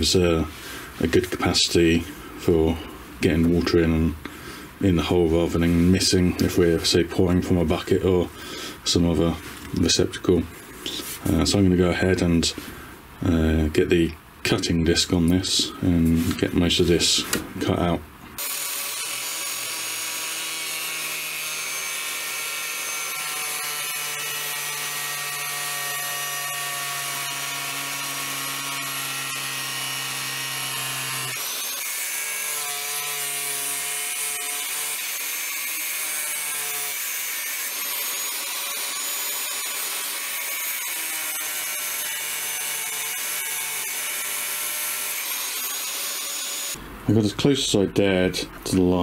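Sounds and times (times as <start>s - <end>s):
angle grinder cutting sheet metal: 18.4s - 46.8s.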